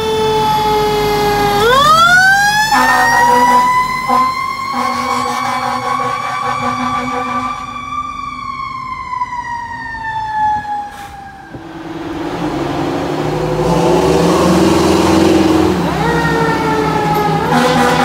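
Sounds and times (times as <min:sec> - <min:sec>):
fire engine siren: 0:00.0 - 0:18.0
ladder truck engine: 0:10.6 - 0:18.0.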